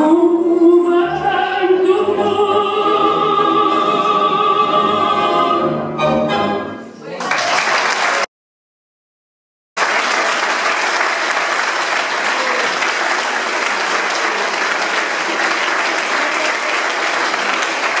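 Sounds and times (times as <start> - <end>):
audience applauding: 7.2 - 8.3, 9.8 - 18.0.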